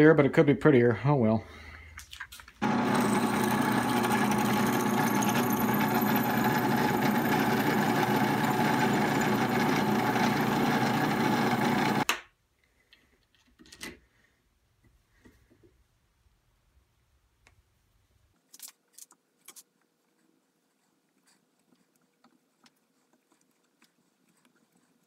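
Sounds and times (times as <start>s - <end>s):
drill press drilling metal: 2.6s - 12.0s.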